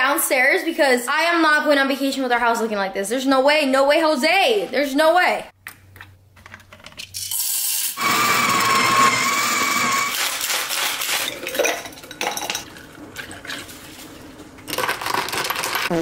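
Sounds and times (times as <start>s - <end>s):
espresso machine whine: 7.9s - 10.1s
ice rattling in a shaker: 14.7s - 16.0s.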